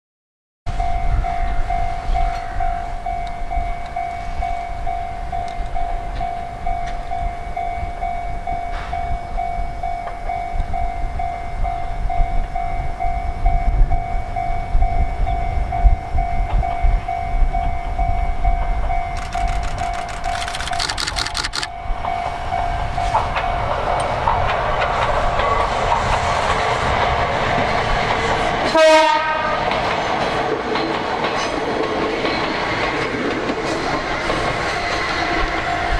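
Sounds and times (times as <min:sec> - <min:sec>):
level-crossing warning bell: 0:00.7 - 0:25.9
train rumble: 0:00.7 - 0:35.9
train wheels clacking on rails: 0:15.8 - 0:35.9.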